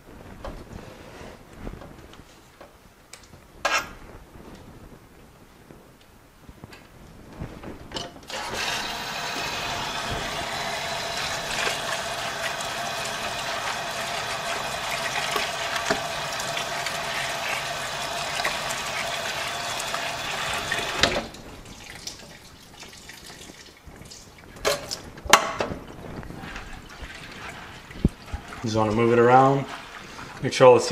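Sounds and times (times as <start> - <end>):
hose water running into bucket: 8.3 - 25.0, 25.8 - 30.9.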